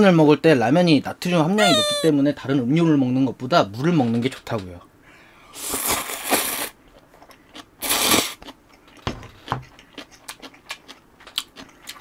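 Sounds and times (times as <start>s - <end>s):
chewing with small clicks: 6.9s - 7.7s, 8.4s - 12.0s
person slurping noodles: 7.8s - 8.4s.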